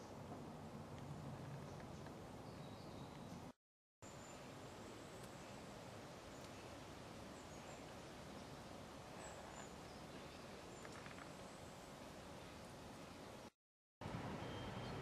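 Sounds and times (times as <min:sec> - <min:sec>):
faint woodland hiss: 0:04.0 - 0:13.5.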